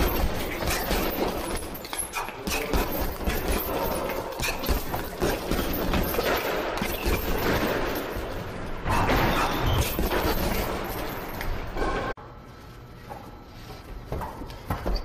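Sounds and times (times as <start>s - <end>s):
gloved punches on heavy bag: 0.0s - 8.0s.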